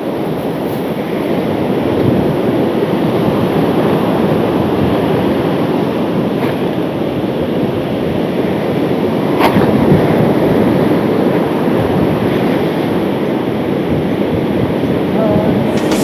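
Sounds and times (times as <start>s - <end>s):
sea surf breaking on beach: 15.1s - 16.0s.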